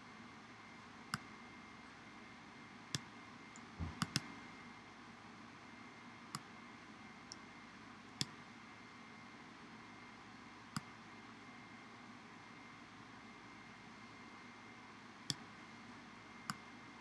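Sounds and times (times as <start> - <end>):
soft low thump: 3.8 - 4.0.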